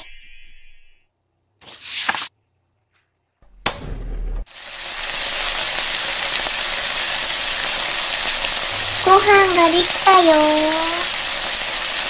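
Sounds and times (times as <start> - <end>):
frying sizzle: 4.4 - 12.0.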